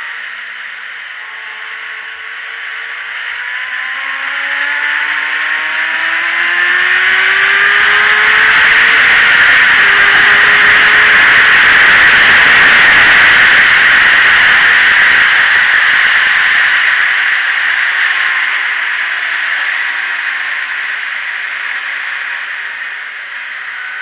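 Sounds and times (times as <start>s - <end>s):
faint motorcycle engine: 0.0s - 24.0s
wind rush on microphone: 7.9s - 17.4s.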